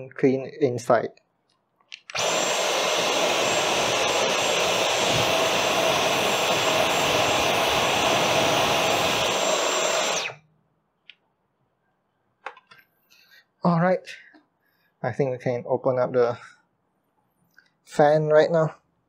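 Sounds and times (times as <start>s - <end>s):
cordless vacuum cleaner whine: 2.1s - 10.4s.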